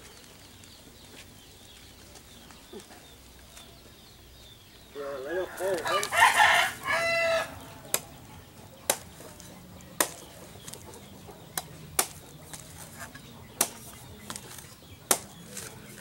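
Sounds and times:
chicken calls: 0.8s - 16.0s
knife chopping coconut husk: 7.8s - 8.2s, 8.8s - 10.9s, 11.5s - 16.0s.

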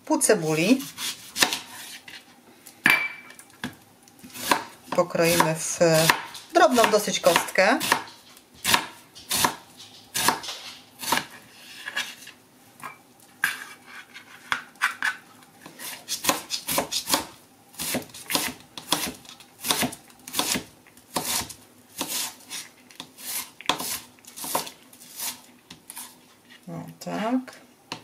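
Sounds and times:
knife chopping on plastic board: 0.9s - 1.7s, 4.3s - 4.7s, 5.3s - 9.6s, 10.2s - 11.3s, 16.0s - 22.4s.

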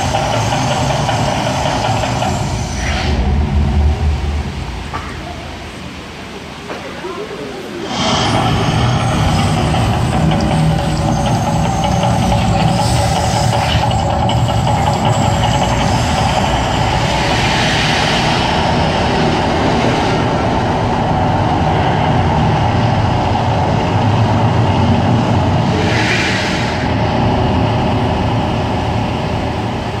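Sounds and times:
heavy eruption rumble: 2.4s - 5.8s, 14.3s - 30.0s.

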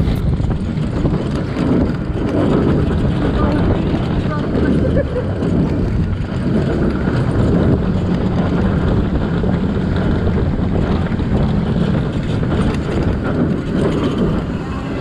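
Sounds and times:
roller coaster rumbling on track: 0.0s - 15.0s
wind rushing over microphone: 0.0s - 15.0s.

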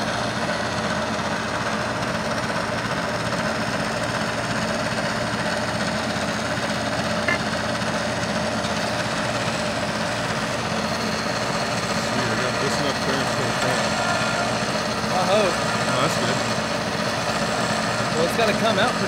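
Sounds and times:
milling machine cutting metal: 6.8s - 19.0s.

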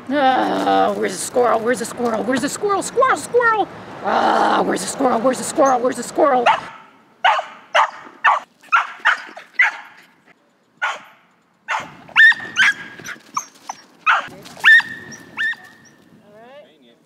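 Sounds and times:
dog barking: 6.4s - 10.0s, 10.8s - 13.2s, 14.0s - 15.6s
dog yipping: 6.4s - 10.1s, 10.8s - 16.0s.

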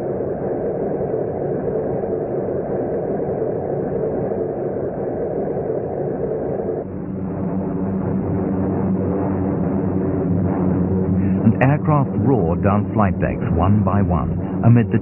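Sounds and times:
aircraft engines droning: 0.0s - 15.0s
music: 6.9s - 15.0s.

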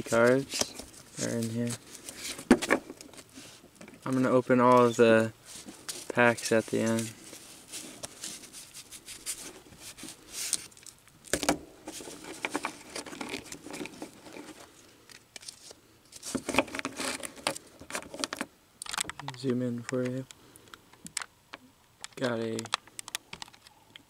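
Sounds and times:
cards sliding and scraping: 0.0s - 10.9s, 11.8s - 18.4s
rustling of cards: 0.0s - 20.3s, 22.1s - 23.8s.

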